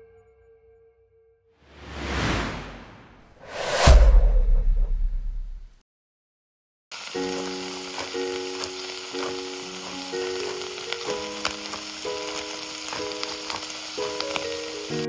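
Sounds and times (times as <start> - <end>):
food sizzling in hot oil: 6.9 - 15.0
oil crackling and popping: 6.9 - 15.0.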